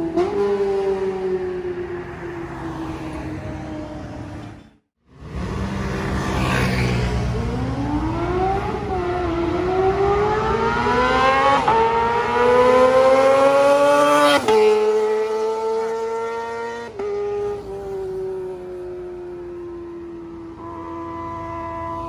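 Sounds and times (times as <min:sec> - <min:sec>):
motorcycle accelerating hard: 0:05.2 - 0:18.4.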